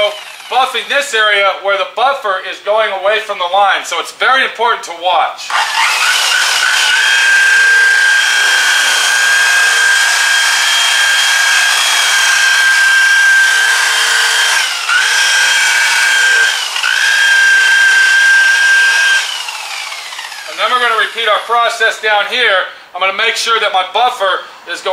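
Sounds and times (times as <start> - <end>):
rotary buffer whining: 0.0 - 1.2, 5.5 - 21.9.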